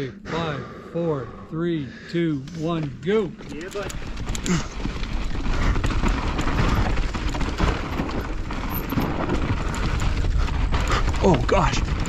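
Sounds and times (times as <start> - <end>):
bike clattering over rough ground: 3.0 - 12.0
bike rushing noise: 3.9 - 12.0.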